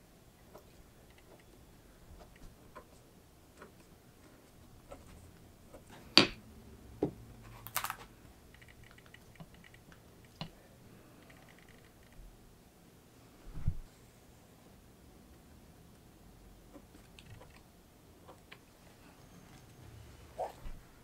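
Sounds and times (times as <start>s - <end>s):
paper rustle: 7.4s - 8.1s.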